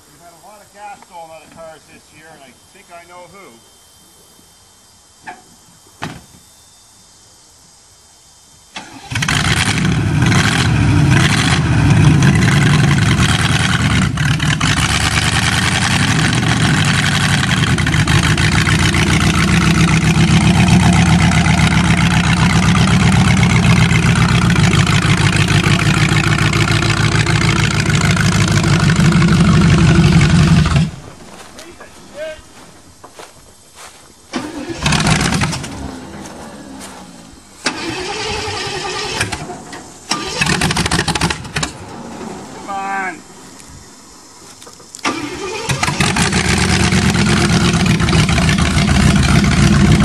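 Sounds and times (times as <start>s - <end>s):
car engine starting and running: 8.8s - 31.0s, 34.3s - 42.7s, 44.7s - 50.0s.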